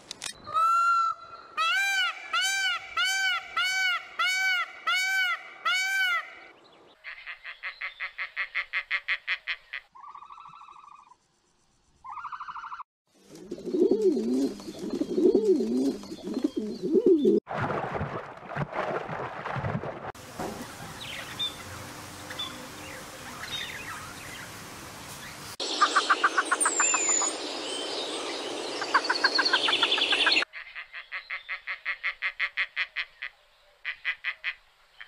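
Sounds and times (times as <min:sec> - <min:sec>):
peacock honking: 0:00.5 - 0:06.5
rapid pulsed animal calls: 0:09.9 - 0:11.4, 0:12.0 - 0:12.8.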